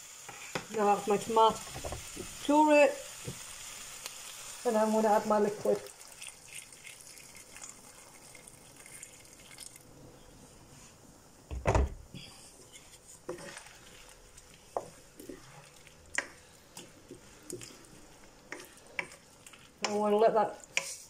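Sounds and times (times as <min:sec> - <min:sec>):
water pouring into pan: 0:05.8 - 0:09.9.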